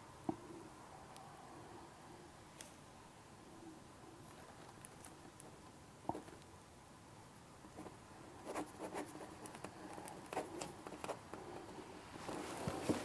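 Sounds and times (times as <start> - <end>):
pen scratching on paper: 8.4 - 11.2.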